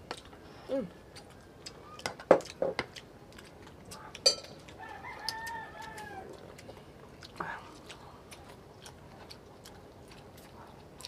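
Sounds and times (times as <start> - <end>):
person humming: 0.7 - 0.9
tableware clinking on plates: 4.2 - 4.6.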